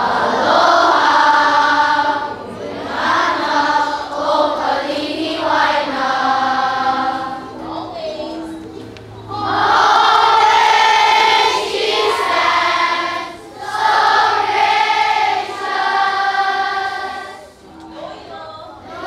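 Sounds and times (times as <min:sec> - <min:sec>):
children singing together: 0:00.0 - 0:19.0.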